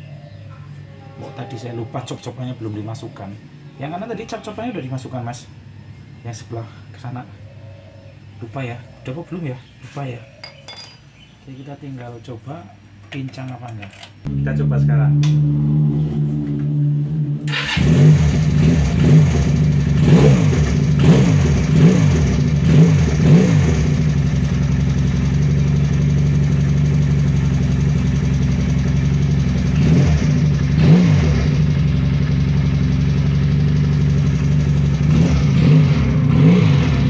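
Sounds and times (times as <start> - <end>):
motorcycle engine idling and revving: 14.2 - 37.0.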